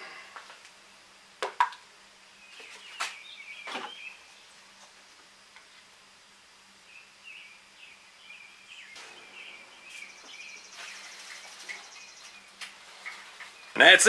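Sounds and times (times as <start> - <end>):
insects buzzing: 0.0 - 14.0
bird chirping: 2.3 - 5.2, 6.8 - 14.0.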